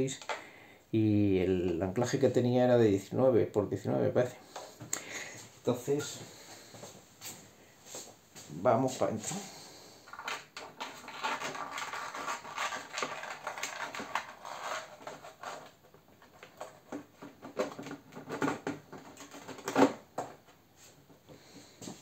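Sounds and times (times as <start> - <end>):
hands scraping and rattling plastic parts: 10.0 - 20.6.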